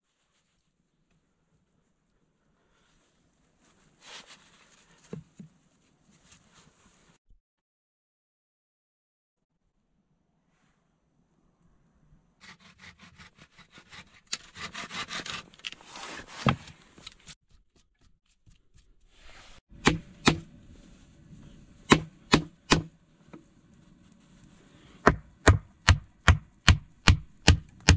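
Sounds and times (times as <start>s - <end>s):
gloved hands scraping a log: 12.4s - 25.4s
hatchet striking wood: 19.8s - 20.5s, 21.9s - 22.9s, 25.0s - 27.9s.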